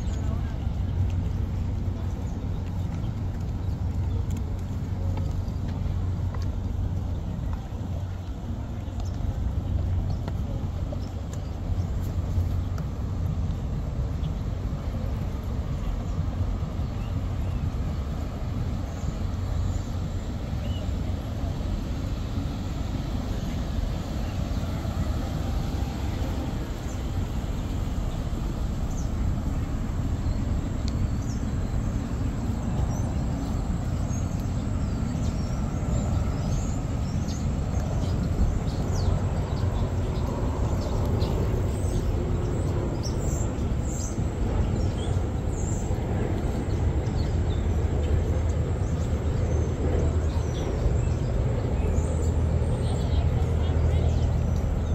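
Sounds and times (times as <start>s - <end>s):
birds chirping: 0.0s - 54.9s
low city rumble: 0.0s - 54.9s.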